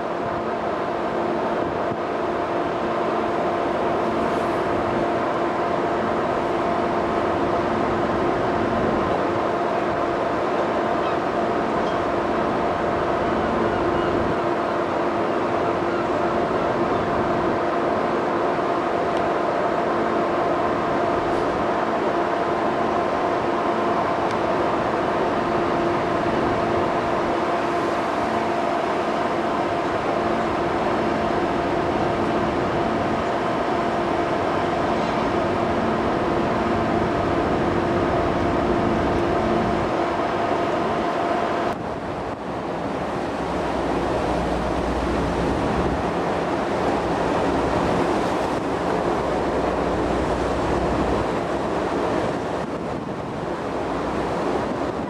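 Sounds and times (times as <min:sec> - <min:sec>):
ferry engines droning: 0:00.0 - 0:55.0
rush of wind and sea: 0:00.0 - 0:55.0
wind buffeting microphone: 0:29.5 - 0:55.0.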